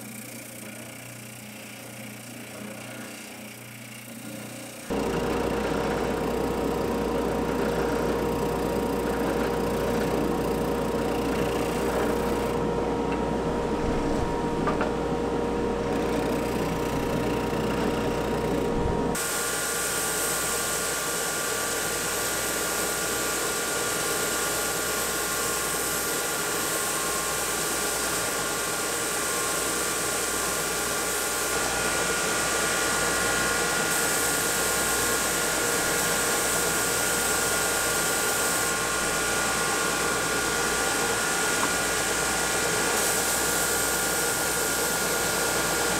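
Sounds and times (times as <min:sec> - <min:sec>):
belt sander whine and hiss: 0:00.0 - 0:45.9
spindle sander sanding wood: 0:15.6 - 0:19.3.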